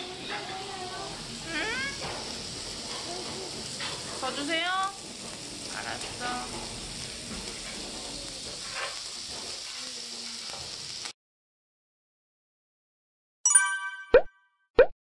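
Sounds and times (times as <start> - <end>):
meat sizzling on a grill pan: 0.0 - 11.2.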